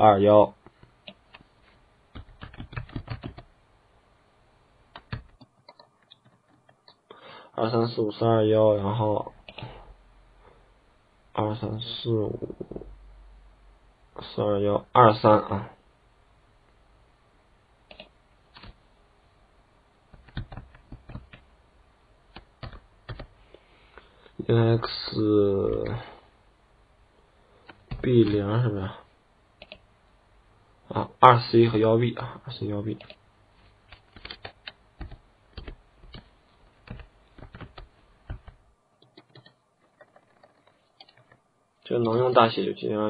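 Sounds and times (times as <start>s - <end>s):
computer keyboard keystrokes: 2.2s - 3.4s.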